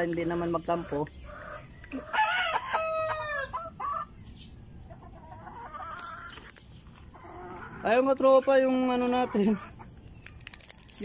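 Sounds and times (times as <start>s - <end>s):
chicken calls: 0.4s - 10.8s
rooster crowing: 1.4s - 4.1s.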